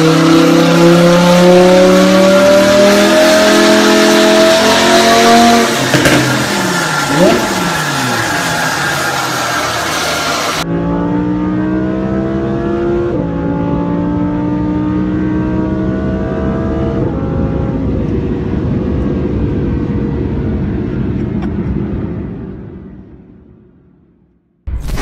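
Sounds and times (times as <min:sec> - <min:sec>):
car engine revving and accelerating: 0:00.0 - 0:19.8.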